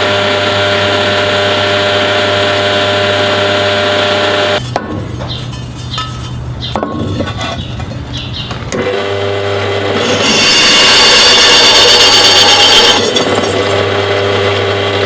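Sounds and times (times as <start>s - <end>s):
drill press motor running: 0.0s - 4.6s, 8.7s - 15.0s
drill bit cutting metal: 9.1s - 14.7s.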